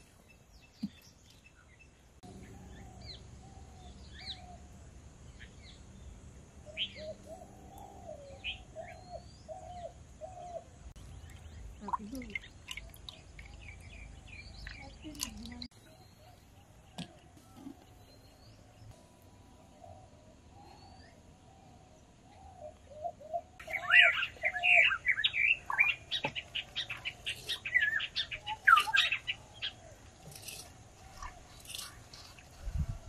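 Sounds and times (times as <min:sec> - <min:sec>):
birds chirping: 0:00.0 - 0:32.6.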